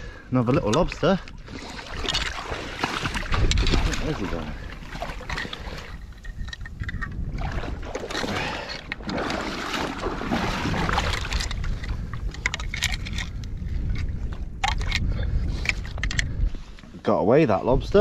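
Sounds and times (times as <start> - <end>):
water sloshing and splashing: 0.0 - 15.1
wind rumbling on microphone: 0.0 - 18.0.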